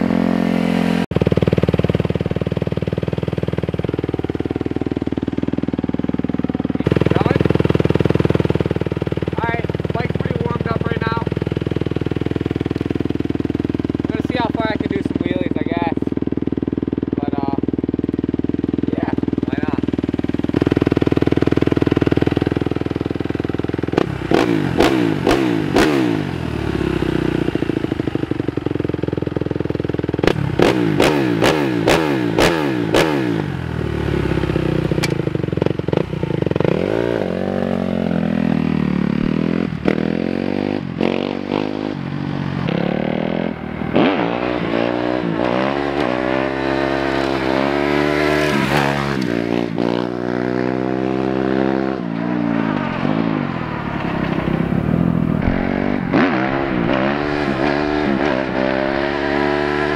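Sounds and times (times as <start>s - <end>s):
dirt bike engine idling: 0.0s - 59.9s
motorbike accelerating: 0.0s - 59.9s
throttle revs: 23.8s - 27.7s, 30.1s - 37.6s, 39.2s - 59.9s.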